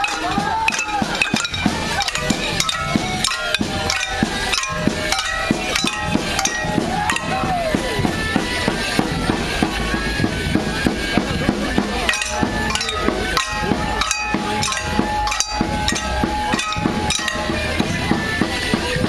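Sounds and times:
wooden sticks clacking together: 0:00.0 - 0:07.8, 0:11.9 - 0:18.0
folk dance tune: 0:00.0 - 0:19.0.

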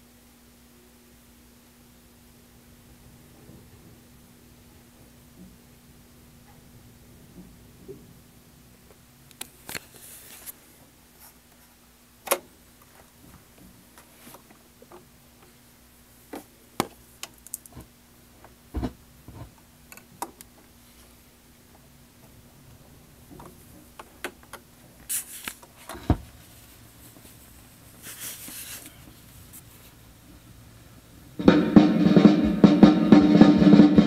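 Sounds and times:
steady low hum: 0:00.0 - 0:34.0
vinyl surface hiss: 0:00.0 - 0:34.0
vinyl clicks and pops: 0:12.2 - 0:12.9.

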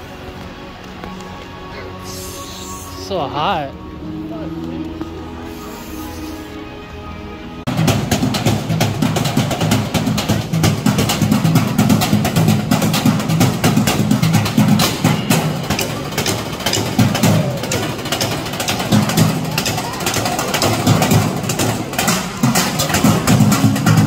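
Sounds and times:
music with driving drum beat: 0:07.7 - 0:24.0.

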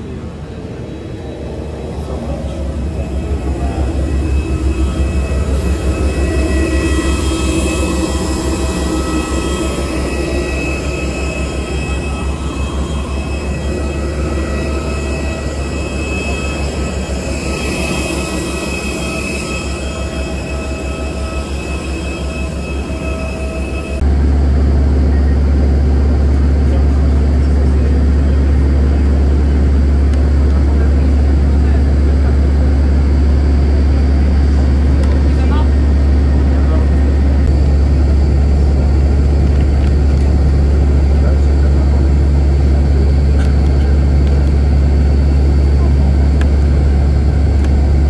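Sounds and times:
jet turbine rumble and whine: 0:00.0 - 0:48.0
deep hum: 0:01.9 - 0:26.1.

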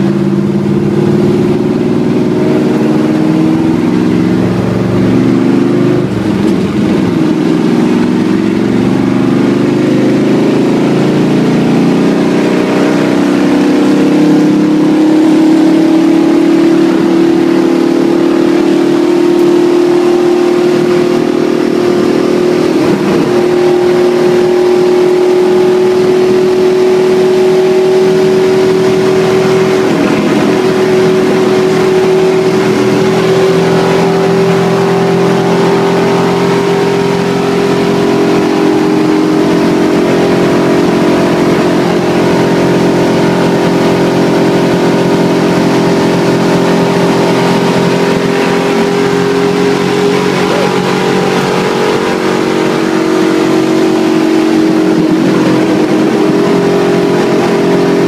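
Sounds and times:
race car engine at high revs: 0:00.0 - 0:58.0.

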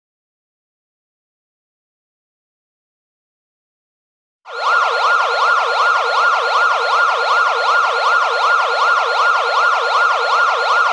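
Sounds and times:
siren yelping: 0:04.5 - 0:10.9.

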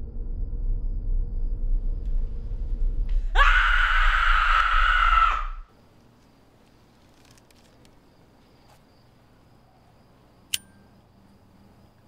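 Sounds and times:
sharp click: 0:10.5 - 0:10.8
faint steady high tone: 0:10.5 - 0:11.2.

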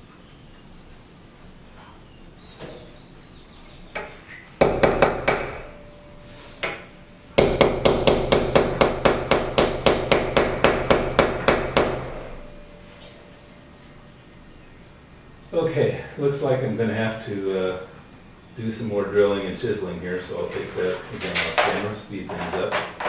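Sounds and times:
hammer striking chisel: 0:04.0 - 0:05.8, 0:07.4 - 0:12.4.

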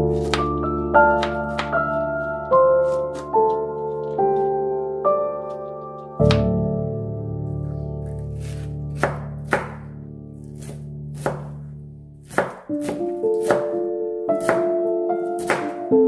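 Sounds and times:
soft keyboard music: 0:00.0 - 0:16.0
knife chopping on a cutting board: 0:00.1 - 0:01.9, 0:02.8 - 0:03.3, 0:08.1 - 0:09.9, 0:10.5 - 0:15.8.

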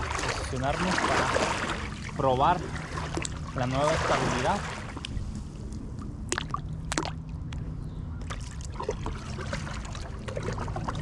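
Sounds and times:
sharp little splashes: 0:00.0 - 0:05.2, 0:08.3 - 0:11.0
low steady rumble: 0:00.0 - 0:11.0
water lapping and trickling: 0:00.0 - 0:11.0.

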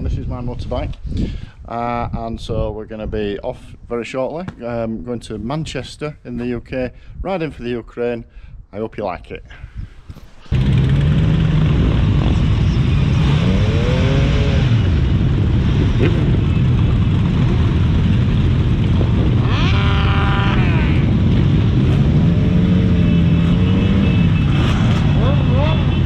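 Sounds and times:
motorcycle engines on road: 0:10.4 - 0:26.0.

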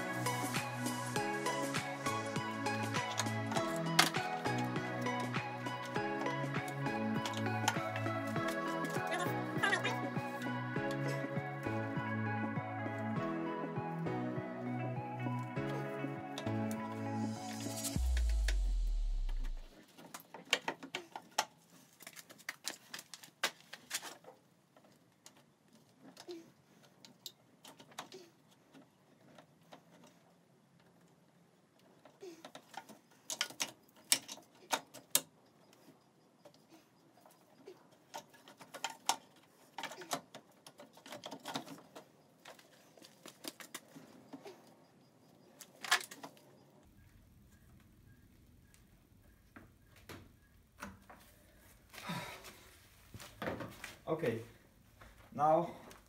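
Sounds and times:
hand tools clicking and rattling: 0:02.8 - 0:09.8, 0:19.8 - 0:44.8.

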